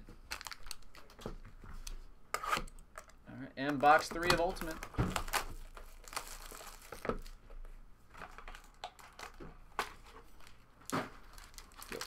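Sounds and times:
plastic wrap crinkling and tearing: 0:00.0 - 0:01.3, 0:03.8 - 0:07.4, 0:08.2 - 0:12.0.

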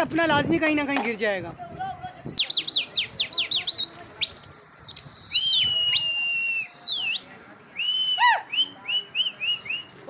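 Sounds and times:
people whistling loudly: 0:02.4 - 0:10.0.

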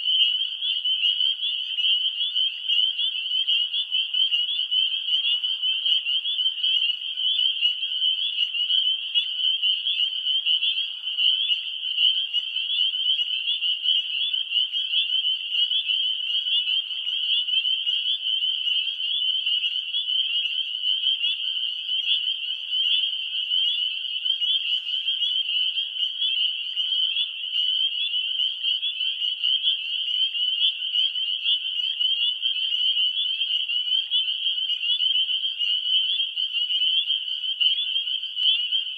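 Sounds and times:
chorus of frogs trilling: 0:00.0 - 0:38.9.

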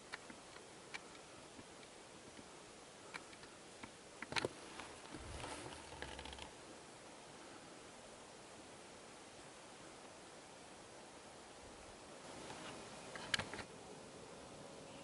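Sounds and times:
rustling in undergrowth: 0:04.4 - 0:06.7, 0:11.7 - 0:13.8.

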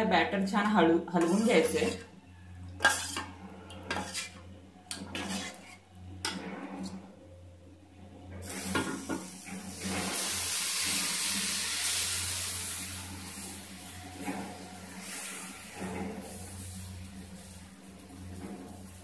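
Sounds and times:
batter sizzling on hot pan: 0:02.8 - 0:06.4, 0:08.4 - 0:19.0.

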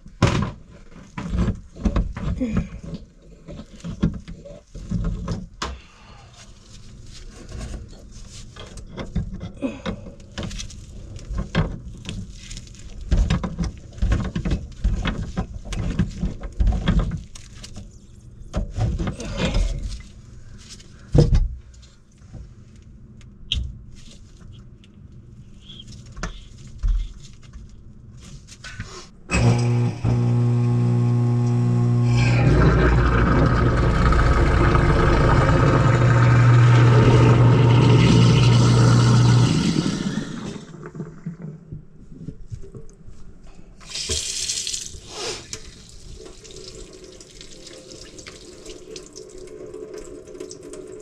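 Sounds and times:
plastic pipe knocks and scraping: 0:13.0 - 0:17.3.

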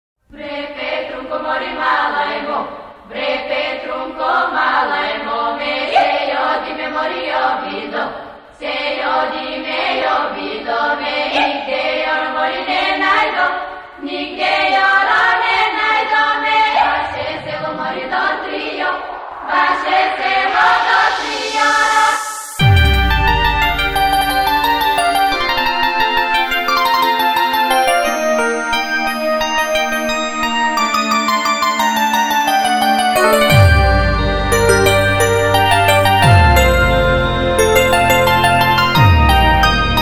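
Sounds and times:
choir-like chanting voices: 0:00.3 - 0:29.9.

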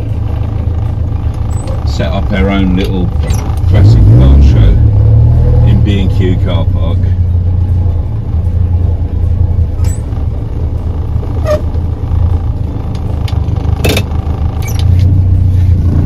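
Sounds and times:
car engine droning: 0:00.0 - 0:16.0.

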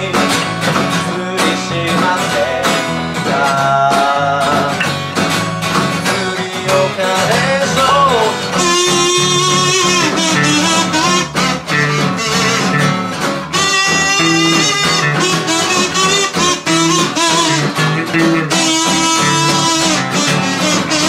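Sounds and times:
man singing: 0:00.0 - 0:05.0, 0:05.9 - 0:12.7
harmonica melody: 0:00.0 - 0:21.0
small band playing: 0:00.0 - 0:21.0.

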